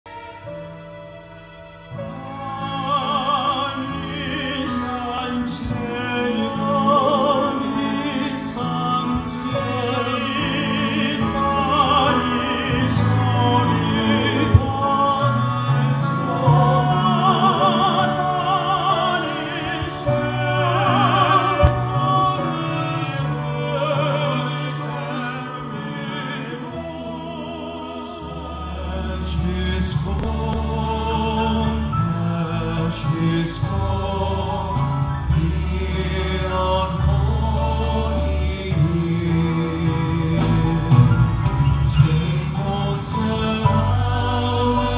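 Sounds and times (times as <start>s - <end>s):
instrumental accompaniment: 0.1s - 44.9s
operatic singing with vibrato: 1.9s - 44.9s.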